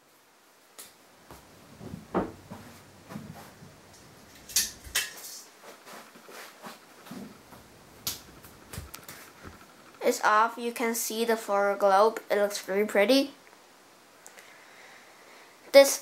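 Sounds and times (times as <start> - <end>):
handling knocks and rustles: 1.2 - 9.8.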